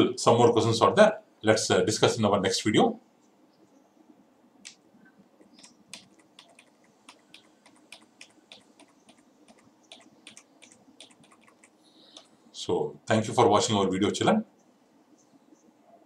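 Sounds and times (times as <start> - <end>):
tapping on computer keyboard: 5.6 - 12.3.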